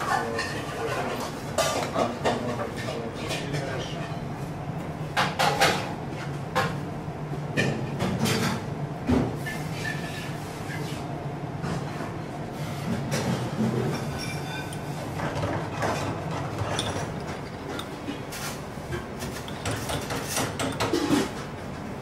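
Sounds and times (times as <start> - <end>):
utensils and dishes clinking: 0.0 - 4.2, 12.9 - 21.6
extractor ventilation hum: 0.0 - 22.0.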